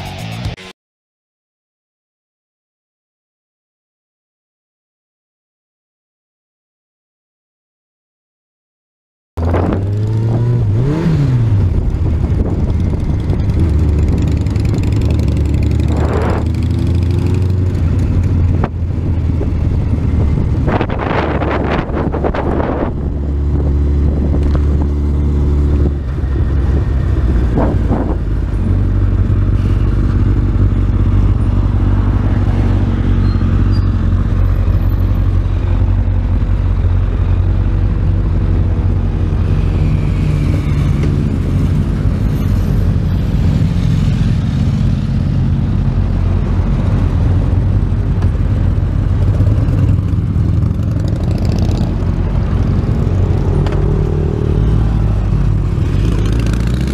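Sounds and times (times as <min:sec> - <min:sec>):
motorcycle engine running: 0:09.4 - 0:42.2, 0:43.7 - 0:56.9.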